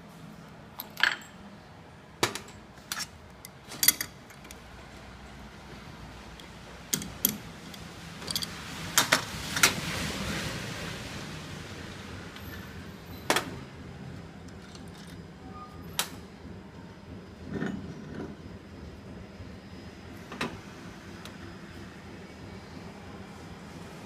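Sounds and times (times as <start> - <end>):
metal clinks and knocks: 6.9 - 8.6.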